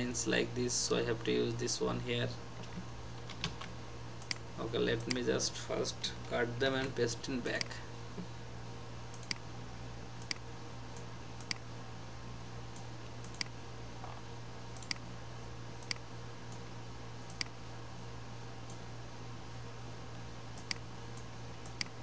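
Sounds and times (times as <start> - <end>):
steady low hum: 0.0 - 22.0
computer mouse clicking: 9.1 - 9.4, 11.4 - 11.6, 13.2 - 13.5, 14.8 - 15.0, 17.3 - 17.6, 20.6 - 22.0.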